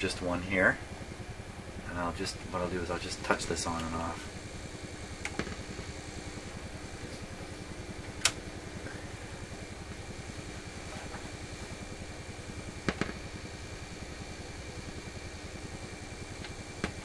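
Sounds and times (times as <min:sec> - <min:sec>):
radio loudspeaker buzz: 0:01.8 - 0:11.9
sharp electrical clicks: 0:02.2 - 0:07.3, 0:08.0 - 0:08.5, 0:12.8 - 0:13.4.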